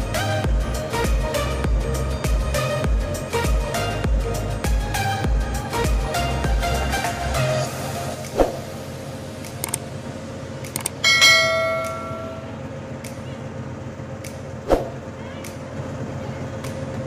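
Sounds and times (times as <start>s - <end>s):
short falling-pitch blip: 11.0s - 12.6s
notification bell chime: 11.1s - 12.5s.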